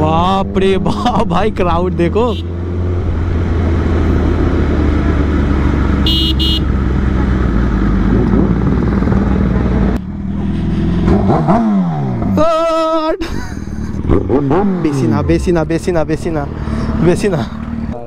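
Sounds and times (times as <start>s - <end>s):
road noise: 0.0s - 18.0s
motorcycle engine running: 2.3s - 12.9s
short high horn toots: 6.0s - 6.6s
engine revving up: 6.9s - 12.3s, 13.8s - 15.7s.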